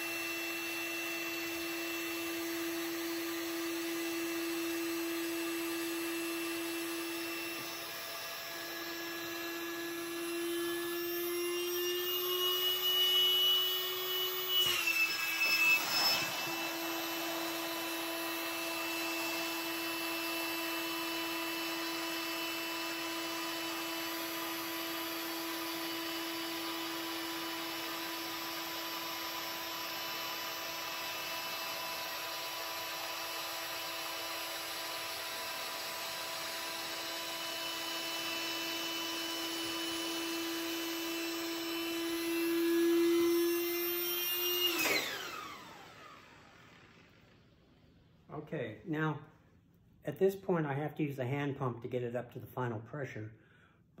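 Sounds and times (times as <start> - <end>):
air inflator motor whine: 0.0 - 48.0.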